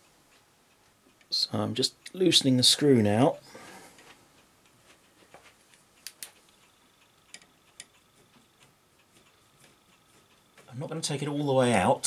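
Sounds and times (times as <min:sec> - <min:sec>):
sharp clicks: 0:05.7 - 0:08.0
screwdriver ticking on metal: 0:07.3 - 0:08.0.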